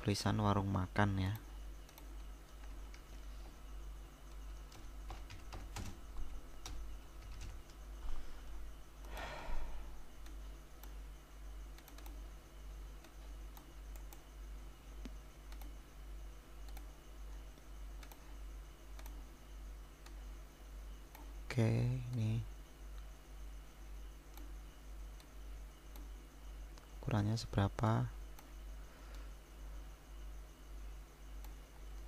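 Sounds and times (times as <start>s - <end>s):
low electrical hum: 0.0s - 32.0s
keyboard typing: 1.2s - 3.2s, 4.3s - 7.8s, 11.7s - 12.3s, 12.9s - 14.3s, 18.0s - 18.3s
mouse clicks: 11.7s - 12.2s, 13.0s - 14.2s, 15.0s - 15.8s, 18.9s - 19.2s, 24.3s - 24.5s, 25.9s - 26.1s, 31.4s - 32.0s.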